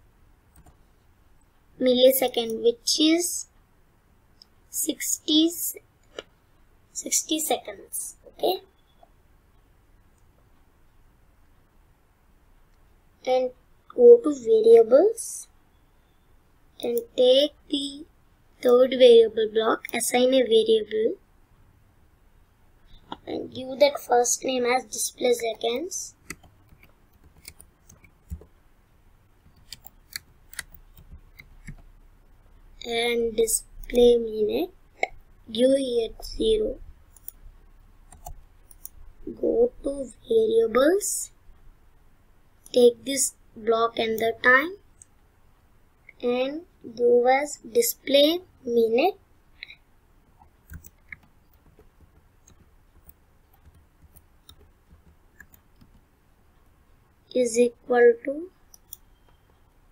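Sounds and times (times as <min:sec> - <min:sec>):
computer mouse clicks: 0:00.5 - 0:00.9, 0:26.2 - 0:28.6, 0:29.4 - 0:31.9, 0:37.1 - 0:37.4, 0:38.0 - 0:39.0, 0:49.6 - 0:56.7, 0:58.7 - 0:59.7.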